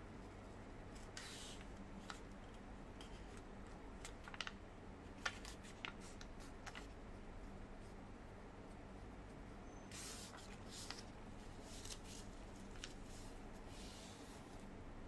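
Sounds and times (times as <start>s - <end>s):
low steady hum: 0.0s - 15.0s
paper crinkling: 3.0s - 4.6s, 5.2s - 6.9s, 10.0s - 14.2s.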